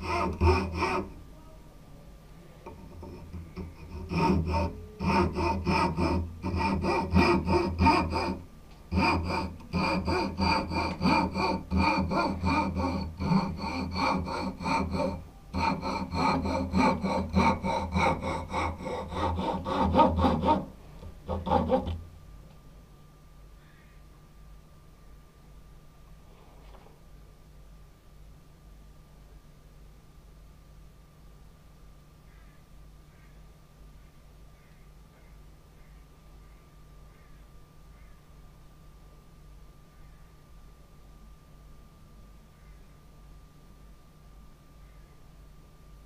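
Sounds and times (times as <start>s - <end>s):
hand saw sawing wood: 0.0s - 1.2s, 2.7s - 22.0s.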